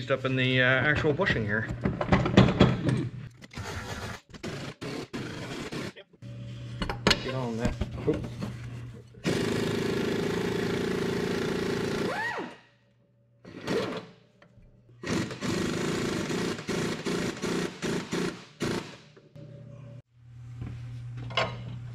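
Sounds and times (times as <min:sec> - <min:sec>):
pneumatic air tool hammering: 0:15.0 - 0:19.1.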